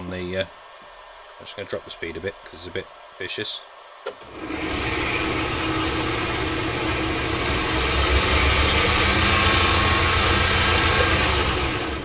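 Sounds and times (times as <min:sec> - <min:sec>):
drill press motor running: 0:04.2 - 0:12.0.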